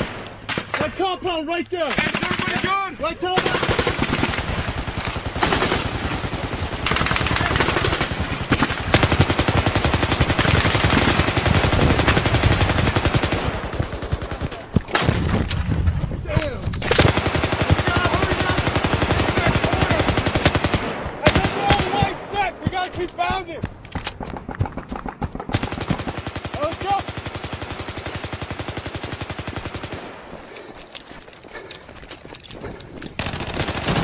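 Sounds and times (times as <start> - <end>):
automatic gunfire: 3.4 - 15.6, 16.8 - 22.4, 24.2 - 30.2, 33.2 - 34.0.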